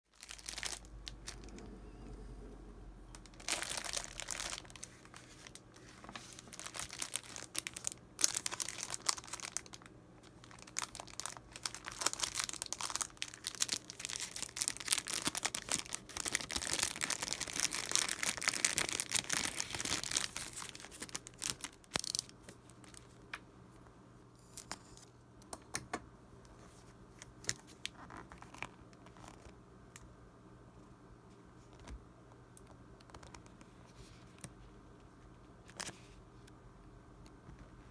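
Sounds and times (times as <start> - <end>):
cellophane crinkling and tearing: 0.1 - 1.7, 3.1 - 23.2, 27.4 - 29.5.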